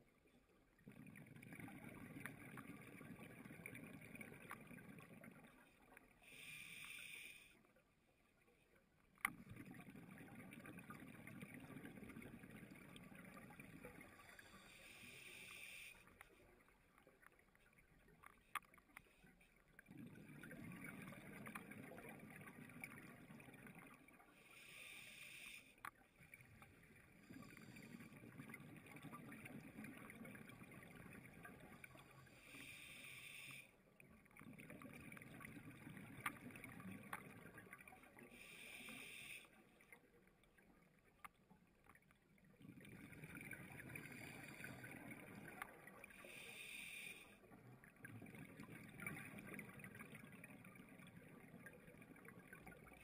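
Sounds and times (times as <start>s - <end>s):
hissing regulator inhalations: 14.4s - 16.0s, 24.5s - 25.8s, 38.4s - 39.5s, 46.2s - 47.4s.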